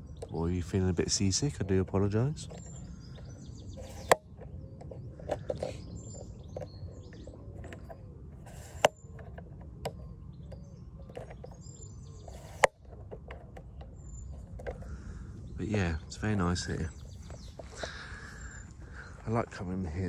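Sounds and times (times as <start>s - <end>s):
small birds chirping: 0.0s - 20.0s
sharp clicks: 3.8s - 11.6s.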